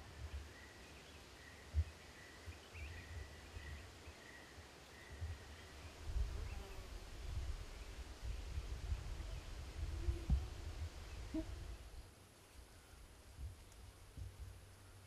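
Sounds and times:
wind buffeting microphone: 6.0s - 12.0s.

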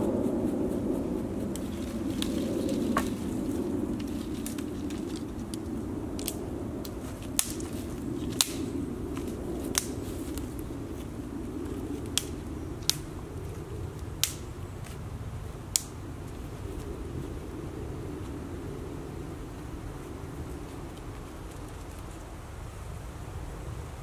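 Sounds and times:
low background rumble: 0.0s - 24.0s
dry twigs snapping: 1.5s - 15.0s, 15.7s - 16.0s.

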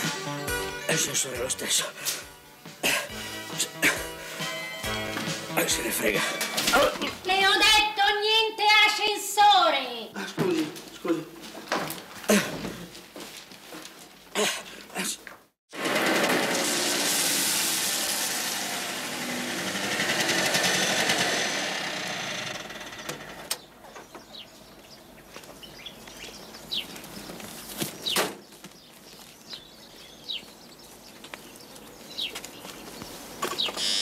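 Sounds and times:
pickup truck engine running: 17.6s - 23.5s
birds chirping: 19.1s - 34.0s.

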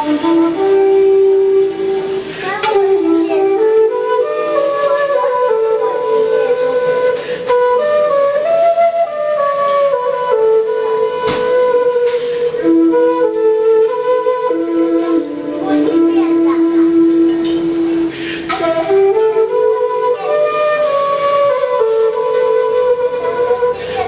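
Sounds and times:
bamboo flute slow melody: 0.0s - 24.0s.

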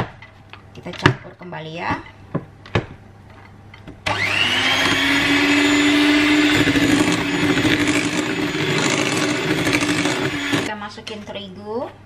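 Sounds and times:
electric hand mixer whining: 4.1s - 10.7s.

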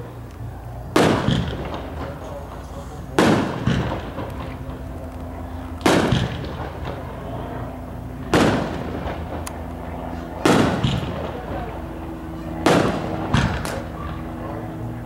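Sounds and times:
faint firework crackles: 0.2s - 14.4s
firework booms echoing: 0.9s - 5.0s, 5.8s - 7.3s, 8.2s - 9.4s, 10.4s - 11.8s, 12.6s - 14.0s.

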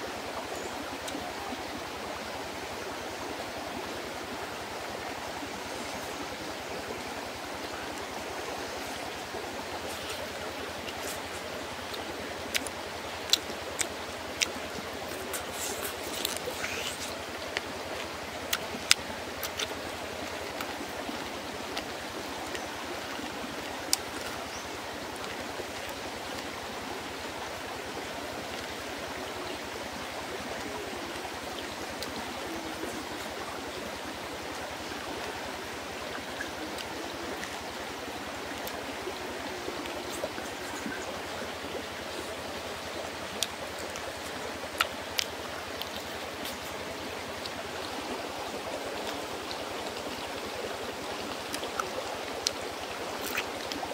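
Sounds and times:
stream running: 0.0s - 53.9s.

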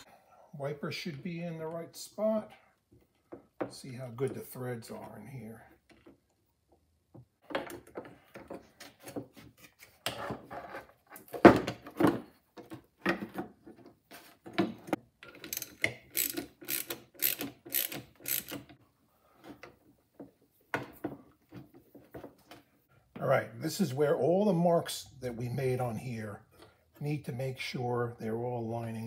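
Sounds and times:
metal parts clicking and knocking: 15.2s - 18.8s.

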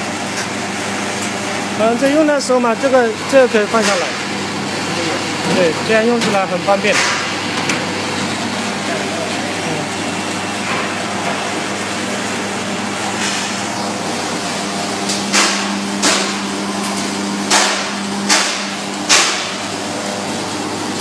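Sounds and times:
roasting machine humming: 0.0s - 21.0s
sharp knocks: 17.5s - 19.6s.

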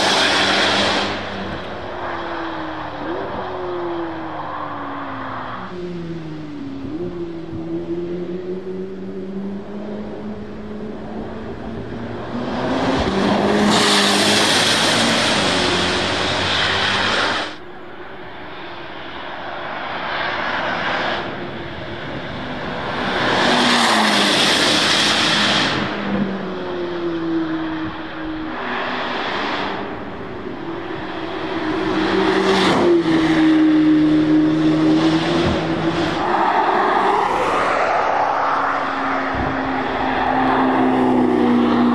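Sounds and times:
race car engine passing: 18.5s - 41.9s.

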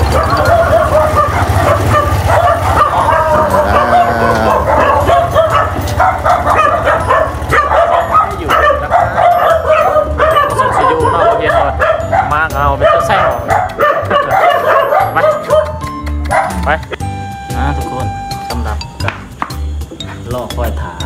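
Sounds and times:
dogs barking and yelping: 0.0s - 16.8s
motorcycle engine running: 0.0s - 20.7s.

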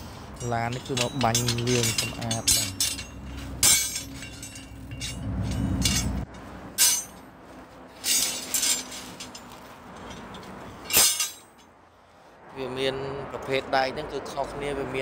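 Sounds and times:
metal rebar clanking: 0.0s - 7.3s, 7.9s - 11.7s
low rumble: 1.5s - 7.2s.

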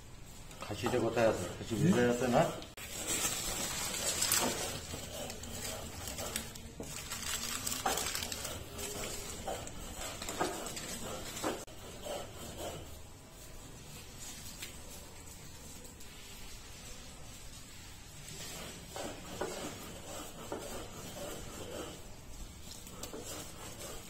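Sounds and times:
plastic packets rustling: 2.8s - 11.5s.

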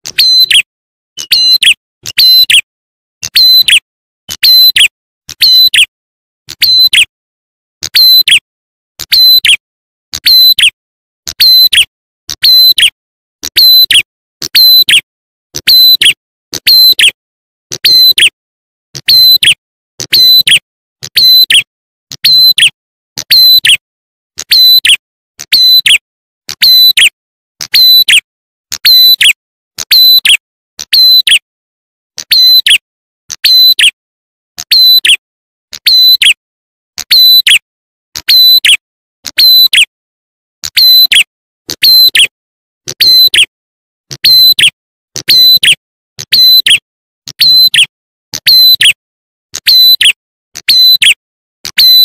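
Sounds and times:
sharp high-pitched bird call: 0.0s - 3.8s, 4.4s - 5.9s, 6.6s - 7.1s, 9.0s - 9.6s, 10.2s - 10.8s, 11.4s - 17.2s, 17.8s - 18.4s, 19.0s - 23.8s, 24.4s - 26.0s, 27.7s - 28.2s, 32.2s - 32.8s, 33.4s - 34.0s, 34.6s - 35.2s, 35.8s - 36.4s, 37.0s - 37.6s, 38.2s - 39.9s, 40.7s - 42.3s, 42.9s - 43.5s, 44.2s - 46.8s, 47.4s - 49.0s.

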